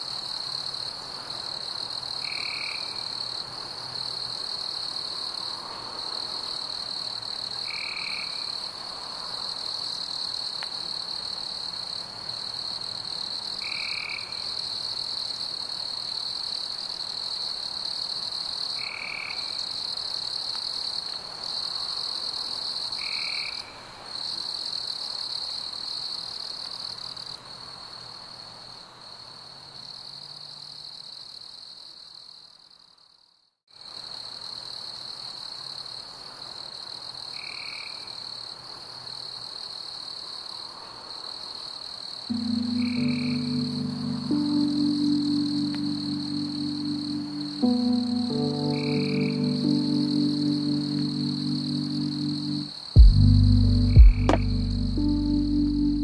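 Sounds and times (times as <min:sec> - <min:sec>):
frogs and insects chorusing: 0:00.3 - 0:03.4, 0:04.0 - 0:27.4, 0:37.3 - 0:38.5, 0:39.4 - 0:53.0
high chirp: 0:42.3 - 0:56.0.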